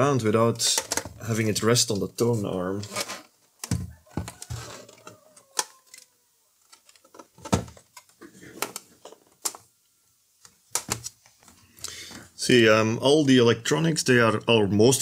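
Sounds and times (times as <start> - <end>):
turntable casing clicks and knocks: 10.7 - 11.1.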